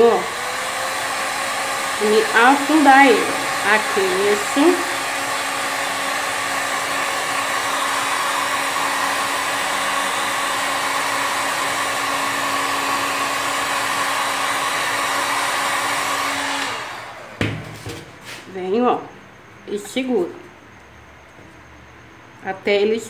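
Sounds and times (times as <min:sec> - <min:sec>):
heat gun blowing air: 0:00.0 - 0:18.4.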